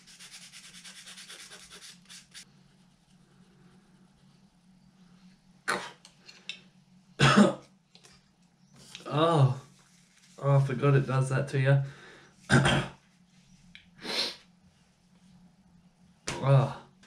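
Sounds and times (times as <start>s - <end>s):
person coughing: 7.2s - 7.6s, 12.5s - 13.0s.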